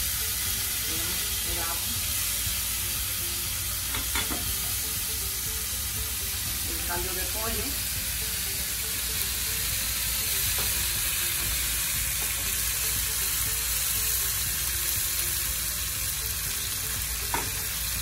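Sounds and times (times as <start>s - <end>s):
food sizzling in a pan: 0.0s - 18.0s.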